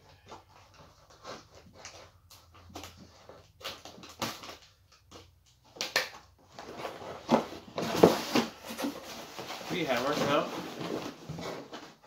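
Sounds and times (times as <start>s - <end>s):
cardboard flaps rustling: 6.4s - 12.0s
cardboard box tape scraping: 6.6s - 12.0s.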